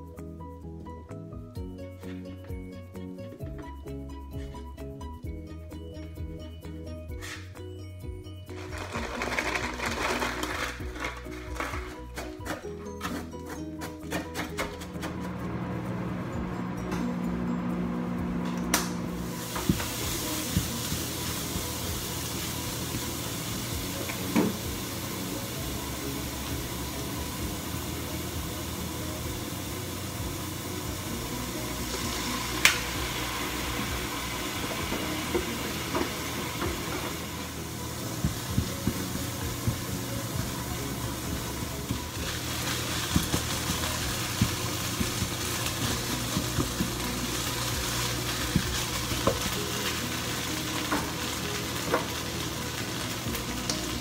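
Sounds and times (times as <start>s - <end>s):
minced meat sizzling in a pan: 19.2s - 54.0s.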